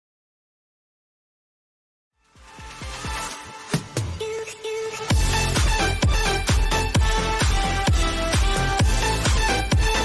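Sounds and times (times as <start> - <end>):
electronic dance music: 2.2 - 10.0.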